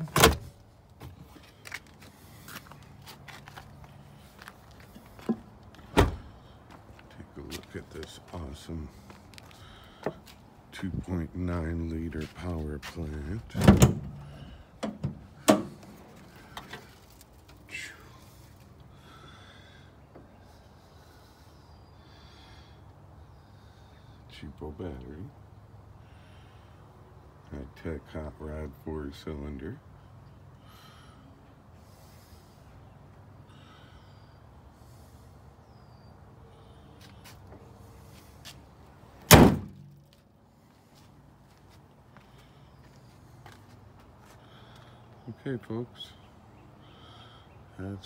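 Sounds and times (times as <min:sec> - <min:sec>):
faint breathing: 0:08.8 - 0:10.5, 0:14.1 - 0:14.8, 0:15.7 - 0:24.3, 0:25.9 - 0:27.4, 0:30.0 - 0:38.5, 0:42.1 - 0:45.3, 0:46.0 - 0:47.7.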